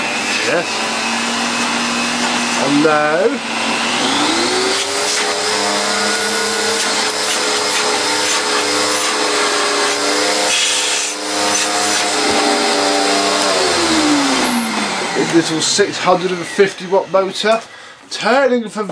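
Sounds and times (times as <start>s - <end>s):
vacuum cleaner motor whining: 0.0s - 17.7s.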